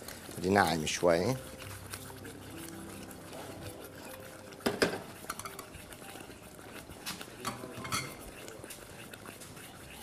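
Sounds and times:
spoon stirring and scraping saucepan: 0.0 - 10.0
spoon clinking against pan: 4.6 - 5.7, 7.4 - 8.2.

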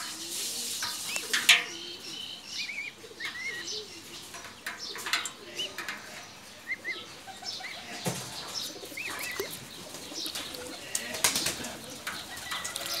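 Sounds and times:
splashing in metal basin: 0.0 - 2.1, 9.0 - 13.0
chicks peeping: 0.1 - 13.0.

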